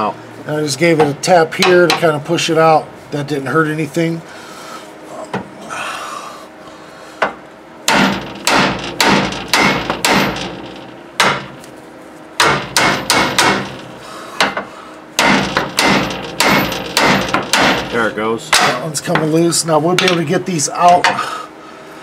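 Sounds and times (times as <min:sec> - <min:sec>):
sledgehammer striking steel: 0:07.9 - 0:11.6, 0:12.4 - 0:14.6, 0:15.2 - 0:19.3.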